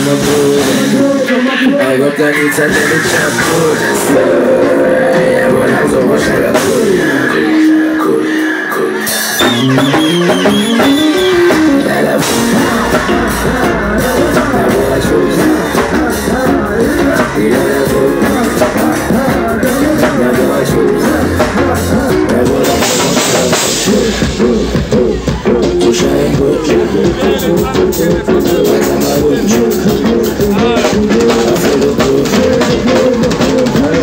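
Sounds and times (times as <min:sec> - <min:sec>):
live band music: 0:00.0 - 0:34.0
person singing: 0:00.0 - 0:34.0
rising pitch glide: 0:09.4 - 0:23.9.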